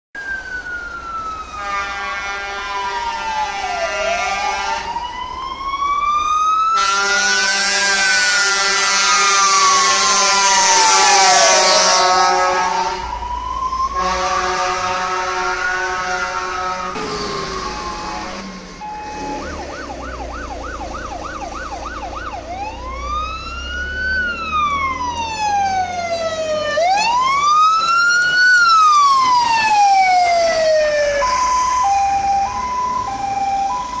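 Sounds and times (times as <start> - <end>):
fire engine siren: 0.2 - 34.0
truck engine running: 14.5 - 22.4.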